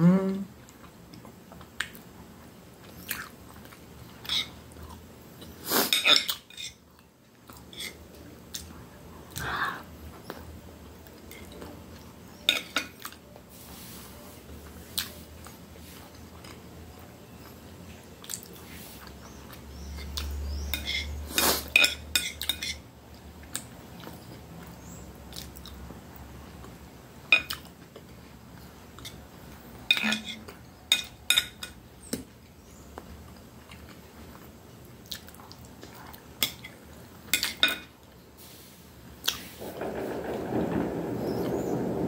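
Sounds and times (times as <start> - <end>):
cutlery clinking on plate: 12.5 - 13.0.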